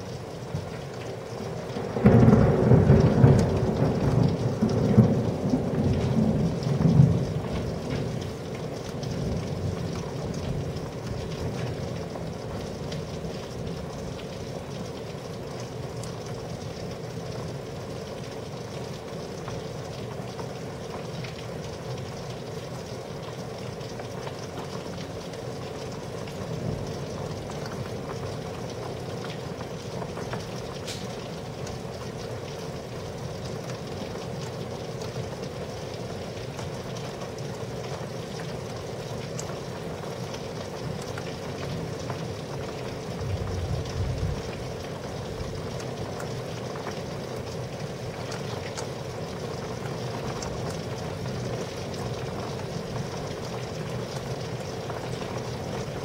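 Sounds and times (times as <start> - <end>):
steady rain falling: 0.0 - 56.0
water drips ticking: 0.1 - 56.0
low thunder rumble: 1.8 - 8.2, 43.2 - 44.6.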